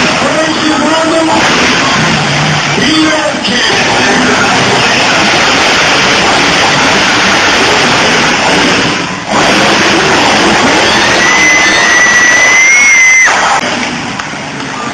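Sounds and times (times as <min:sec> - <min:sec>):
monster truck engine roaring: 0:00.0 - 0:14.9.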